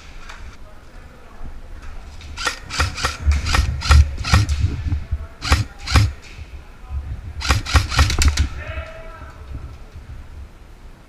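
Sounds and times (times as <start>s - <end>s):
low thuds: 2.2s - 8.8s
airsoft rifle shots: 2.4s - 4.7s, 5.4s - 6.2s, 7.4s - 8.6s.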